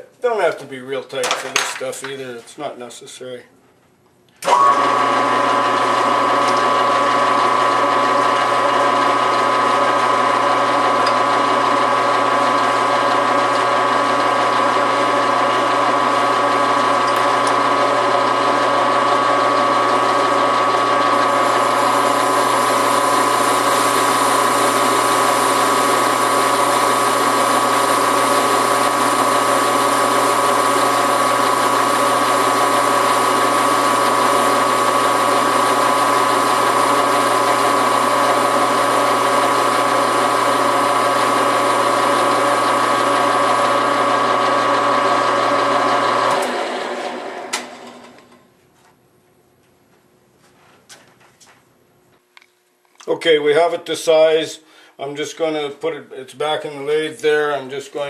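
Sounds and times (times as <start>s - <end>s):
lathe tool cutting metal: 4.4s - 48.2s
metal lathe running with gear whine: 4.4s - 48.2s.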